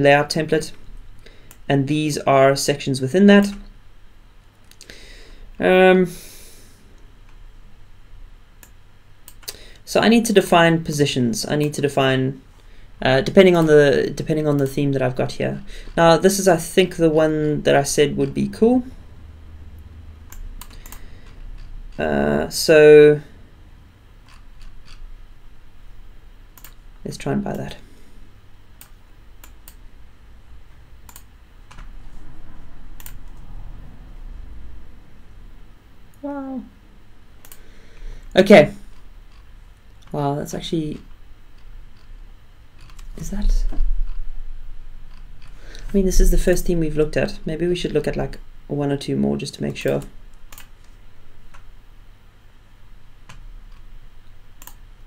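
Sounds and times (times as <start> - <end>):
low background hum: 0.0 - 55.0
computer keyboard clicks: 20.3 - 21.7, 26.6 - 26.8, 31.1 - 31.9, 33.0 - 33.4, 37.4 - 37.6, 49.9 - 50.7, 54.6 - 54.8.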